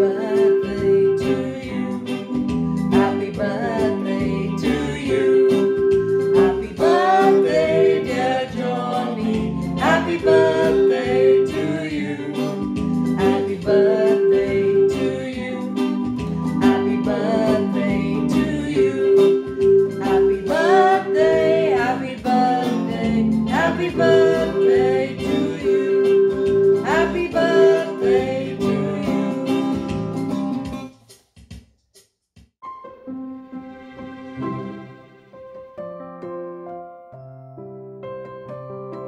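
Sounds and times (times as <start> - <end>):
woman singing: 0.0 - 2.2, 2.9 - 16.0, 16.6 - 29.7
held keyboard note: 0.0 - 29.2, 32.6 - 37.5
strummed acoustic guitar: 0.4 - 30.9
soft background music: 32.7 - 36.0.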